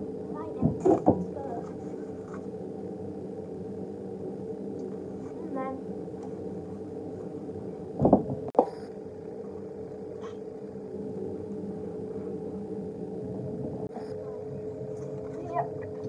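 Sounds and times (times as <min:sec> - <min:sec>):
steady machine hum: 0:00.0 - 0:16.0
loud knocks: 0:08.0 - 0:08.7.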